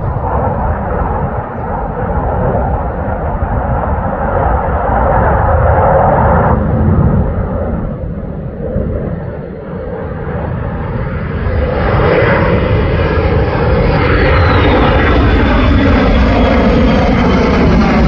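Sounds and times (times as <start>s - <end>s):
fighter jet flying overhead: 0.0s - 18.0s.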